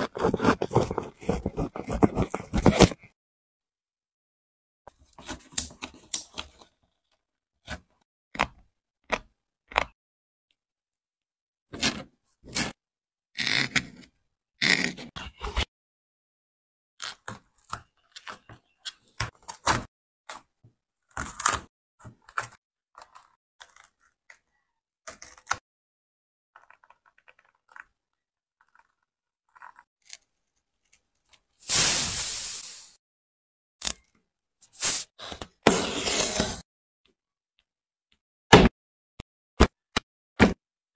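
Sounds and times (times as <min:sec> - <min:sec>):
utility knife scraping through foam: 0:34.6 - 0:36.6.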